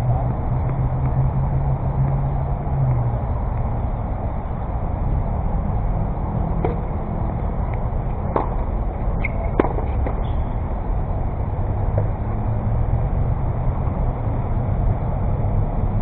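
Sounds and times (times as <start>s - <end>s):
steady low rumble: 0.0s - 16.0s
tennis ball hits: 6.6s - 6.9s, 8.3s - 10.5s.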